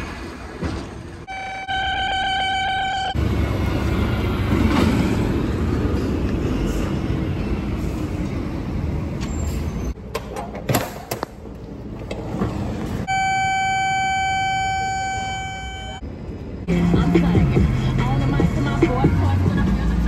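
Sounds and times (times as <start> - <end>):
vehicles passing: 2.7 - 10.2, 16.0 - 20.0.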